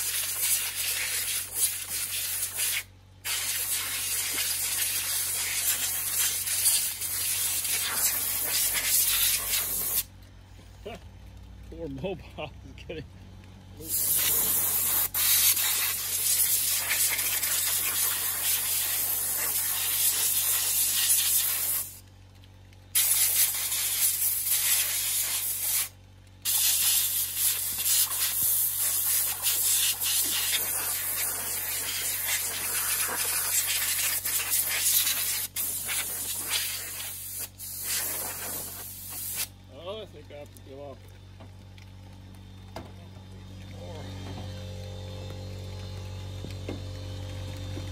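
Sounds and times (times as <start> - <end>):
compressed air blow gun hissing: 0.0 - 10.1, 13.9 - 22.0, 23.0 - 39.5.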